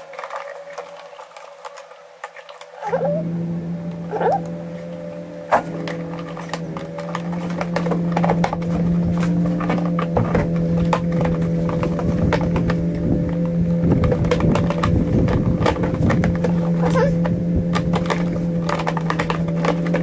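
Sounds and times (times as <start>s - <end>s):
steady low hum: 0.0s - 20.0s
hands clicking plastic controls: 5.8s - 20.0s.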